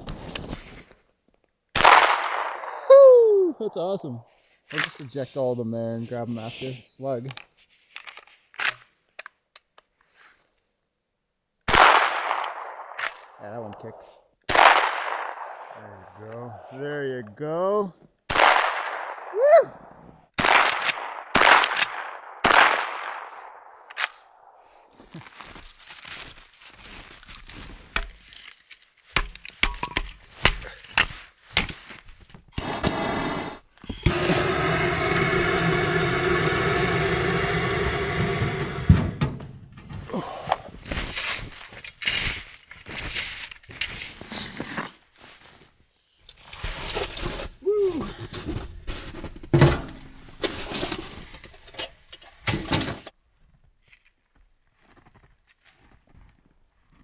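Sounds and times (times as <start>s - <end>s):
shotgun shots echoing: 1.8s - 2.9s, 11.7s - 15.8s, 18.3s - 19.3s, 20.4s - 24.5s
gas torch hissing: 32.6s - 39.8s.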